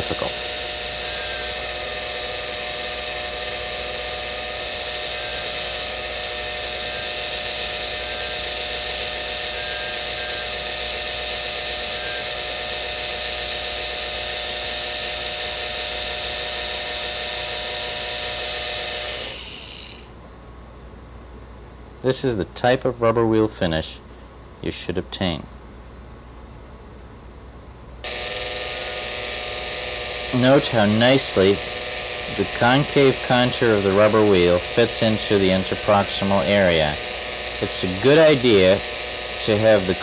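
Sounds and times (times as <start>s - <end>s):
polishing wheel hissing on metal: 0.0s - 20.1s, 28.0s - 40.0s
dental handpiece motor whine: 0.0s - 20.2s, 28.0s - 40.0s.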